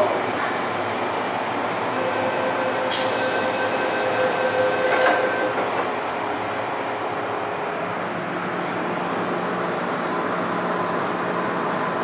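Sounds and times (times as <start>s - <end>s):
train equipment hum: 0.0s - 12.0s
loud door hiss: 2.9s - 4.0s.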